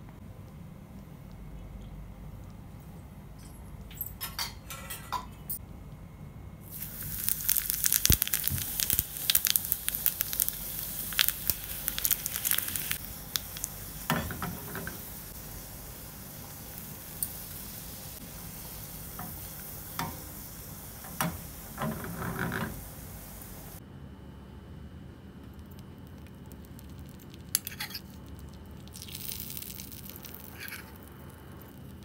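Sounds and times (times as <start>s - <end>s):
seeds sizzling in hot oil: 6.6s - 23.8s, 26.0s - 32.0s.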